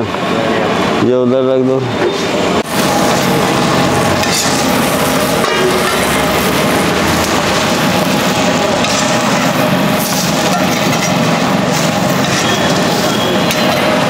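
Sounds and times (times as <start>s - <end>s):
bread sizzling on griddle: 2.6s - 14.0s
metal spatula scraping and tapping: 12.2s - 13.9s.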